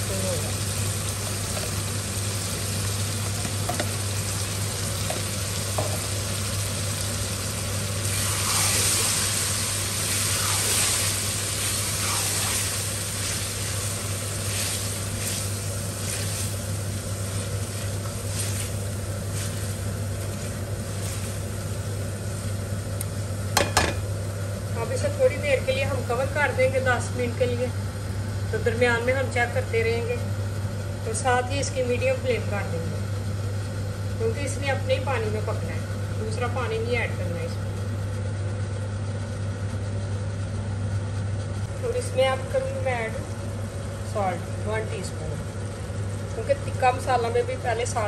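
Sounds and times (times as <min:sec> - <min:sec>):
food sizzling in a pan: 0:00.0 - 0:22.7.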